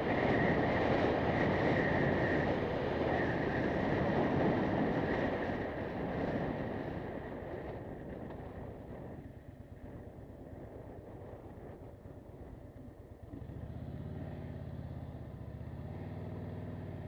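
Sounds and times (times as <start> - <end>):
wind rushing over microphone: 0.0 - 13.4
road noise: 0.0 - 17.0
motorcycle engine: 12.5 - 17.0.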